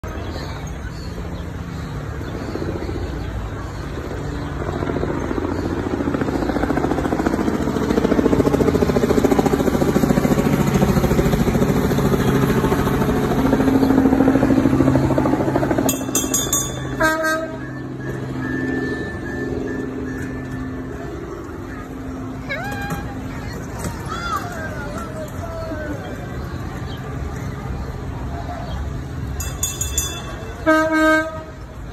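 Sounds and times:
road train motor humming: 0.0s - 31.9s
clicking and high ringing: 15.9s - 21.5s.

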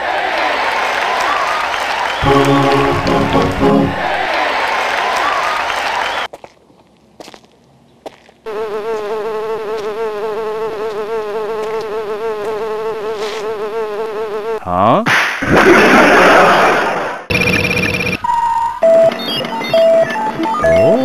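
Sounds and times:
insect-like buzz: 8.5s - 14.6s.

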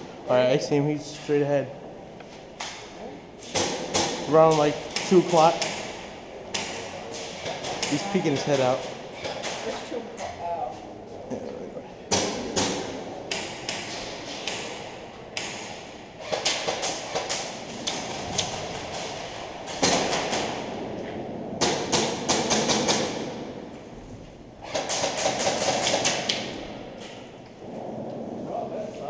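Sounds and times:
airsoft guns firing: 12.1s - 20.8s, 24.6s - 26.6s.

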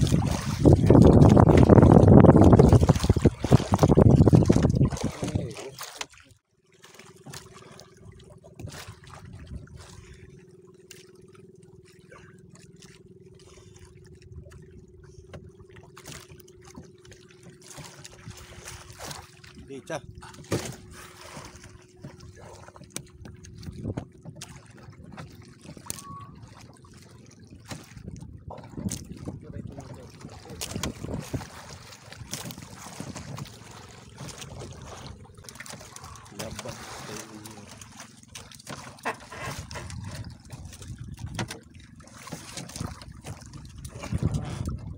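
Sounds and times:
wind buffeting microphone: 0.0s - 5.6s, 27.9s - 35.2s, 39.5s - 41.9s, 42.7s - 44.9s
water splashing around canoe: 0.0s - 44.9s
sharp hits on boat: 20.2s - 22.2s, 41.2s - 44.4s.

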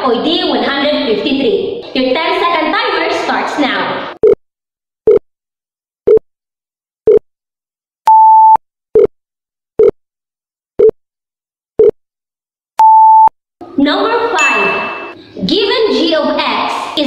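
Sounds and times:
short steady beep: 8.1s - 9.1s, 12.8s - 13.3s, 14.4s - 15.2s.

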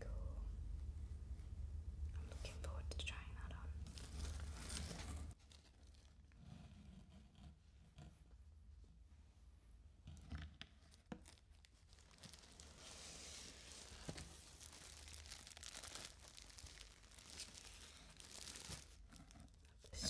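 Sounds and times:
plastic packaging crinkling: 3.8s - 6.4s, 10.8s - 19.8s.

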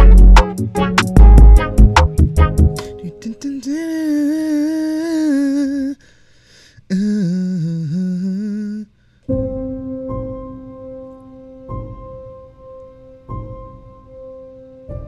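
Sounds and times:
synthesizer notes: 0.0s - 3.3s.

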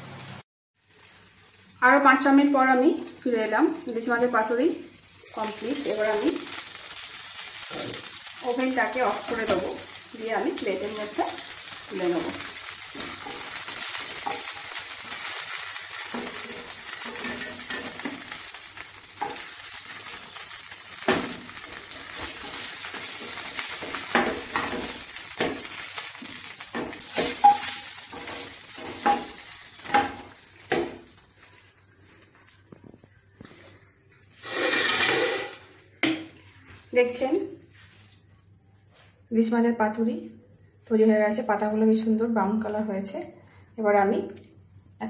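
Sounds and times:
soft sizzle in oil: 0.1s - 32.5s, 34.4s - 36.0s
spatula knocking and scraping pan: 10.6s - 18.5s, 19.2s - 31.1s, 34.4s - 36.3s.

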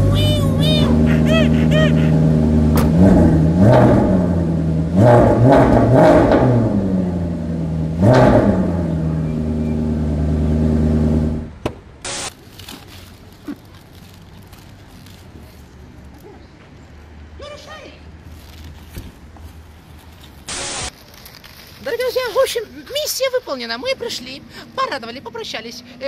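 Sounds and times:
van engine revving: 0.0s - 12.3s.

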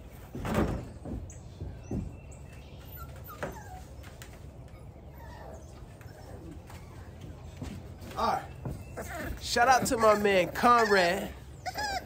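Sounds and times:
puppies whimpering and yipping: 2.3s - 7.6s, 8.8s - 12.0s.

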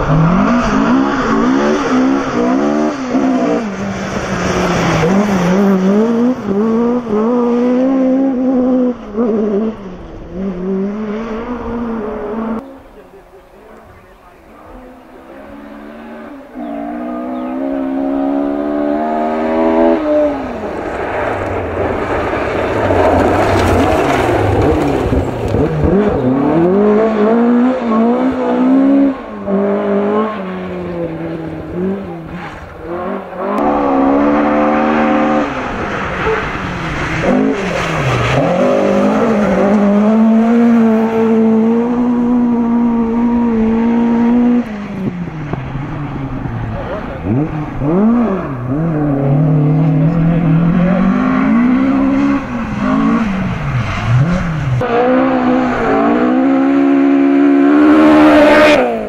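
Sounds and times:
rally car engine revving: 0.0s - 59.0s
tyres on gravel: 20.6s - 26.4s.

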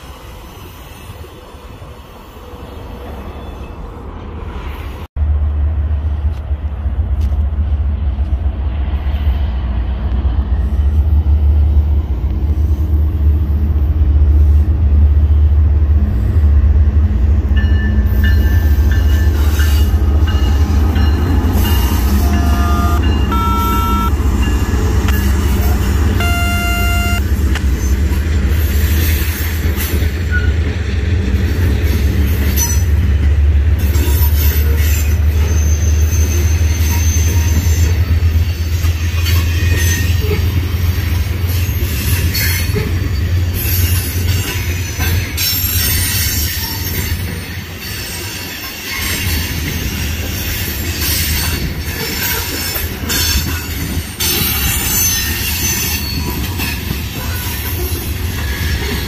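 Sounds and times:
train wheels squealing and clacking: 0.0s - 4.1s, 17.6s - 23.4s, 27.5s - 59.0s
diesel locomotive rumble: 1.6s - 48.2s.

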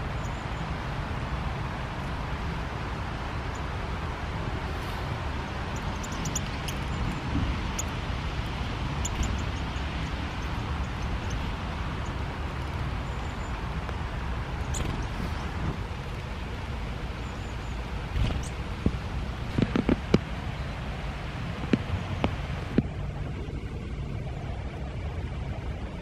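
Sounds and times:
bird chirps: 5.7s - 8.0s, 9.0s - 13.6s.

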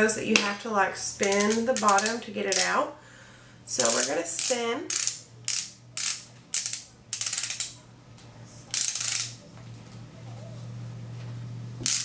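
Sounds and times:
rapid ratcheting clicks: 1.2s - 2.8s, 3.8s - 7.8s, 8.7s - 9.4s.

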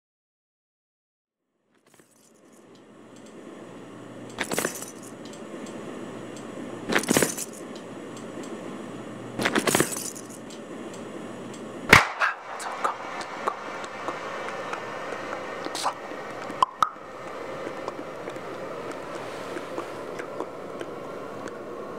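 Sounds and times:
low steady hum: 1.9s - 21.9s
light clicks: 5.2s - 6.5s
sharp crack: 11.9s - 14.2s.

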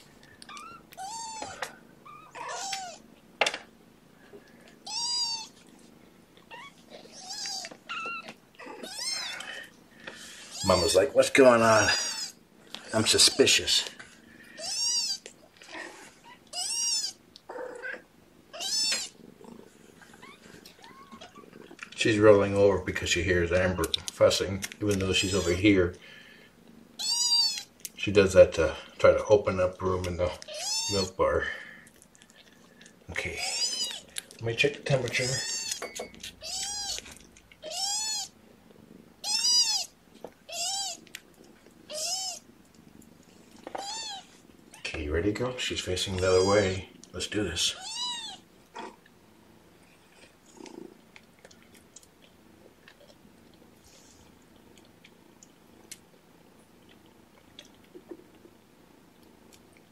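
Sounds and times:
kitten crying: 0.5s - 3.0s, 4.8s - 5.6s, 6.5s - 9.5s, 11.8s - 12.4s, 14.5s - 15.3s, 16.2s - 19.2s, 20.2s - 21.5s, 27.0s - 27.7s, 30.5s - 31.1s, 33.4s - 34.1s, 35.1s - 38.3s, 39.2s - 41.0s, 41.9s - 42.4s, 43.8s - 44.9s, 46.3s - 46.6s, 47.8s - 48.4s
kitten mewing: 0.5s - 3.0s, 4.8s - 5.6s, 6.5s - 9.6s, 11.8s - 12.4s, 14.5s - 19.2s, 27.0s - 27.7s, 30.4s - 31.1s, 33.3s - 34.1s, 35.1s - 38.3s, 39.2s - 41.0s, 41.9s - 42.4s, 43.8s - 45.0s, 47.8s - 49.0s.

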